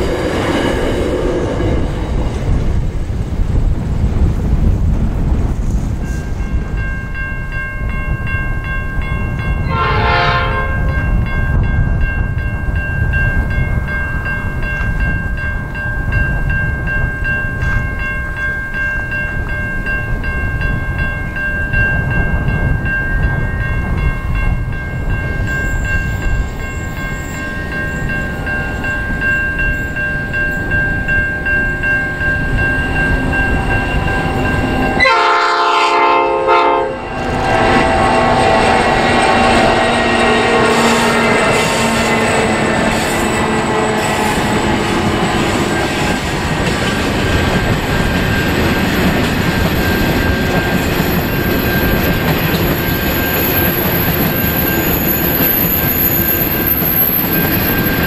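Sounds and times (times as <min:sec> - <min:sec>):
locomotive high whine: 0:00.0 - 0:58.0
wind buffeting microphone: 0:00.0 - 0:58.0
train horn: 0:09.6 - 0:11.1, 0:33.5 - 0:46.1.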